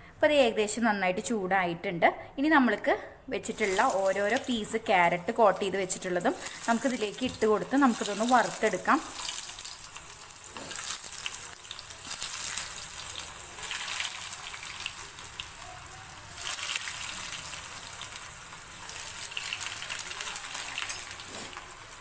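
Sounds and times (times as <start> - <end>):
food deep-frying in oil: 3.5 - 22.0.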